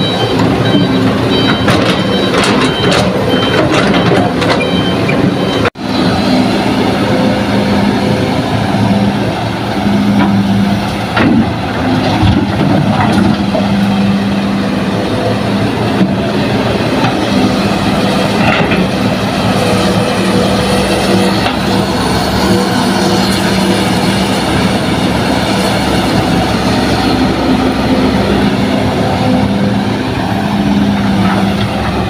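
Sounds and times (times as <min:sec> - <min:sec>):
truck reversing beeper: 0:00.0 - 0:09.2
diesel engines running: 0:00.0 - 0:32.0.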